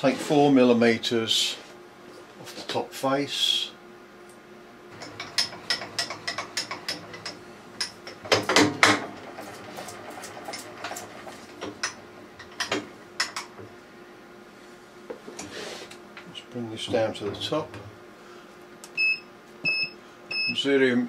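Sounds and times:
milling machine table metallic clicks: 0:05.0 - 0:09.0.

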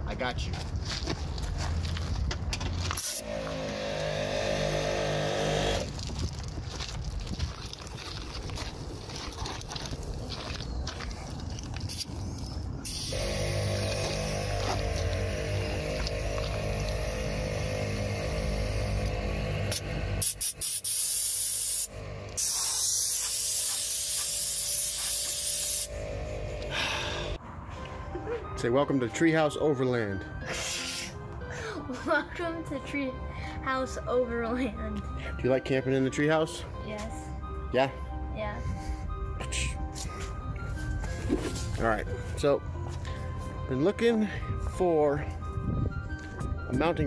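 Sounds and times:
compressed air pulsing into tire: 0:11.9 - 0:27.4
steady hum: 0:13.1 - 0:20.6
compressed air hissing through hose: 0:19.7 - 0:25.9.

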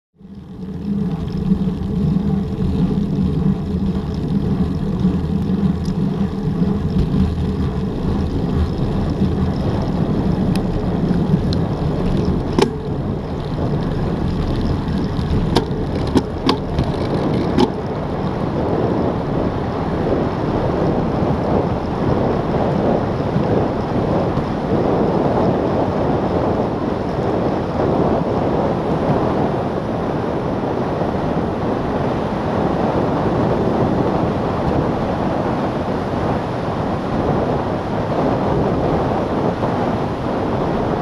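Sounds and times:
tyre and road noise: 0:00.2 - 0:41.0
wind rushing over microphone: 0:00.2 - 0:41.0
sharp clicks or knocks: 0:12.5 - 0:12.8, 0:15.5 - 0:17.8.

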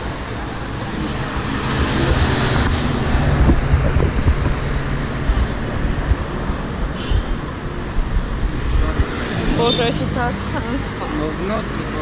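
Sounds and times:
faint street traffic: 0:00.0 - 0:12.0
wind rumble on microphone: 0:00.3 - 0:09.6.

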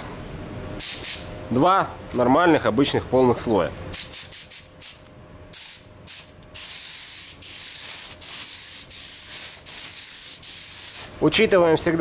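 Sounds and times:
spray gun hissing: 0:05.6 - 0:11.1.

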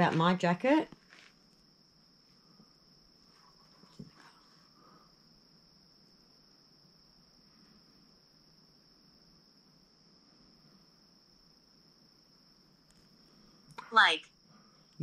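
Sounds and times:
faint high-pitched whine: 0:00.0 - 0:15.0.

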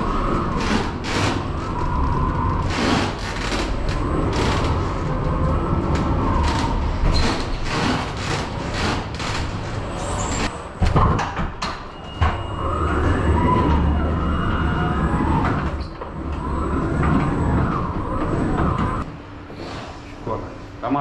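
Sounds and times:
low rumble: 0:00.0 - 0:19.1
wavering squeal: 0:09.2 - 0:19.1.

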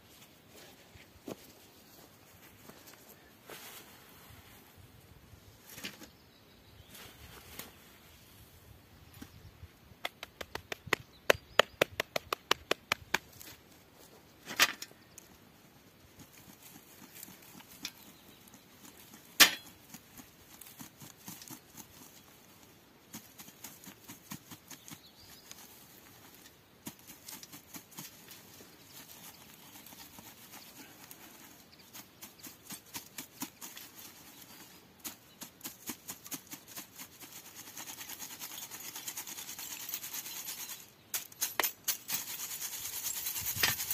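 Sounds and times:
ash rattling and scraping on mesh: 0:37.9 - 0:43.9.

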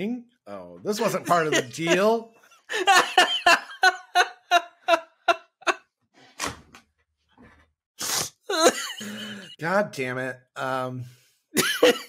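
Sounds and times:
man laughing hard: 0:01.0 - 0:05.8, 0:08.5 - 0:09.6, 0:11.6 - 0:12.0.

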